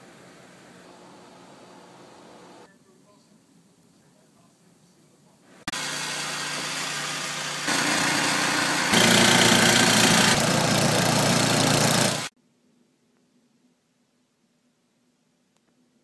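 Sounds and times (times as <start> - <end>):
snow hissing from snowblower: 5.7 - 12.3
snowblower engine running: 5.7 - 12.3.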